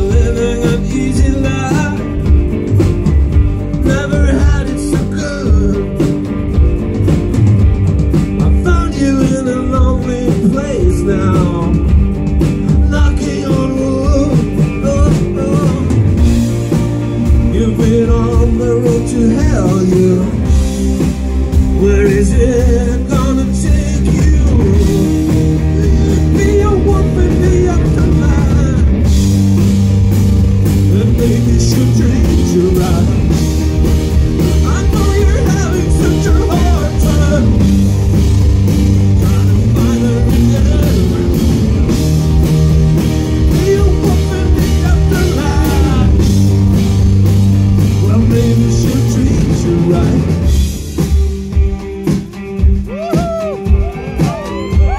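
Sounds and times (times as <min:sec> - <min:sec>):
person singing: 0:00.0 - 0:02.4, 0:03.7 - 0:06.2, 0:08.4 - 0:12.0, 0:12.7 - 0:16.5, 0:17.2 - 0:20.8, 0:21.5 - 0:29.2, 0:30.8 - 0:42.3, 0:43.0 - 0:46.6, 0:47.8 - 0:50.6, 0:52.6 - 0:54.9
rock band playing live: 0:00.0 - 0:54.9.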